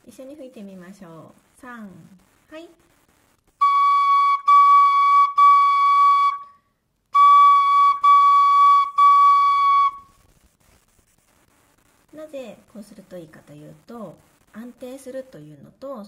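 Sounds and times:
tin whistle notes: 3.6 - 10.1.

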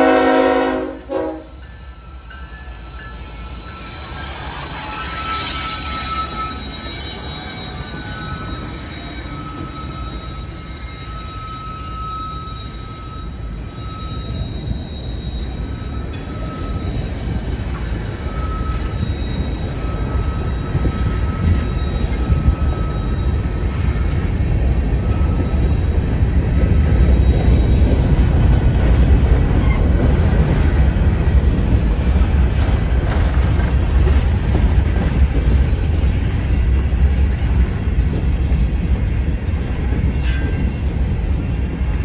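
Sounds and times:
train wheels rumbling on rail: 0.0 - 42.0
high-pitched wheel squeal: 1.6 - 24.3, 29.5 - 30.0.

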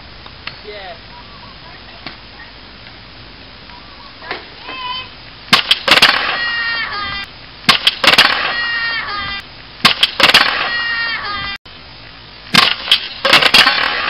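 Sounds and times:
scooter crashing onto concrete: 5.5 - 6.6, 12.5 - 14.0.

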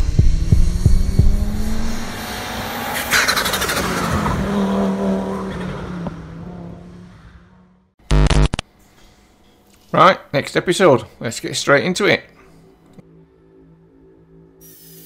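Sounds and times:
car engine revving: 0.0 - 8.6.

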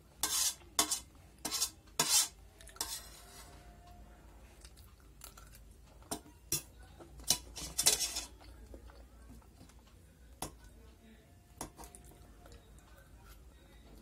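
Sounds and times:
cutlery clinking on steel plate: 0.2 - 3.5, 6.0 - 8.5.

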